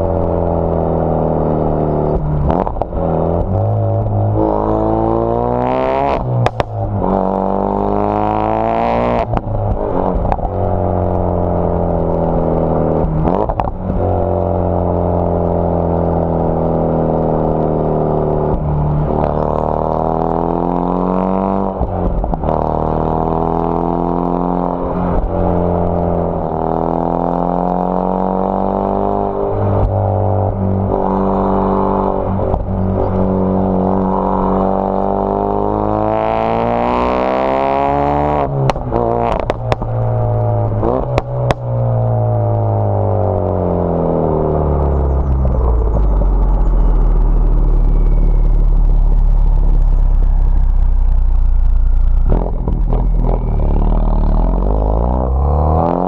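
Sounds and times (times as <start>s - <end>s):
car engine accelerating hard: 0.0s - 56.0s.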